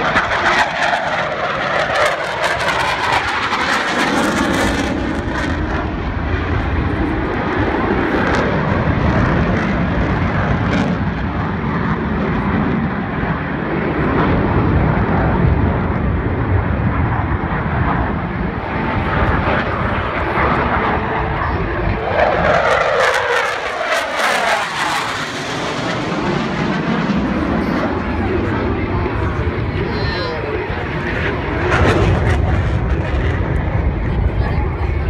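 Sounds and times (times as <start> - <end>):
jets flying past roaring: 0.0 - 35.0.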